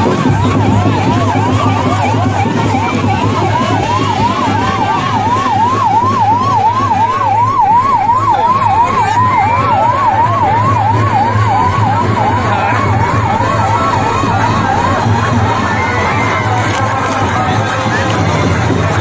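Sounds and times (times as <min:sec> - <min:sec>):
ambulance siren yelping: 0:00.0 - 0:19.0.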